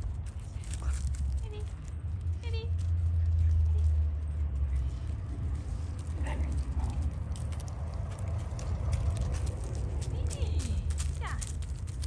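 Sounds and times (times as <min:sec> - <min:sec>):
steady low rumble: 0:00.0 - 0:12.0
dogs moving on wood chips: 0:04.9 - 0:12.0.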